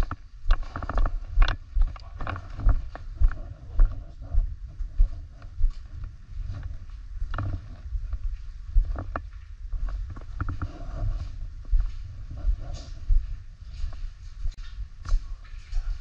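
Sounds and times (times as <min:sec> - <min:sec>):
camera handling rumble: 0:00.0 - 0:04.3
footsteps: 0:00.0 - 0:16.0.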